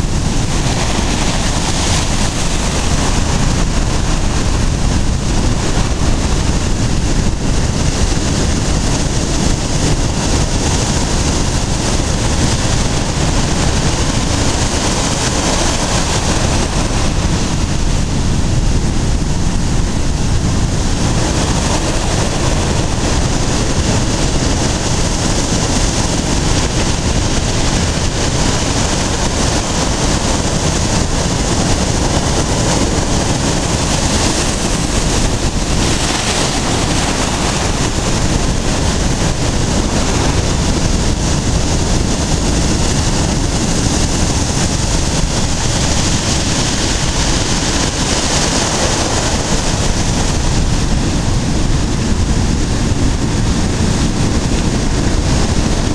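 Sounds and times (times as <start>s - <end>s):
surf breaking on beach: 0.0s - 55.9s
wind noise on microphone: 0.0s - 55.9s.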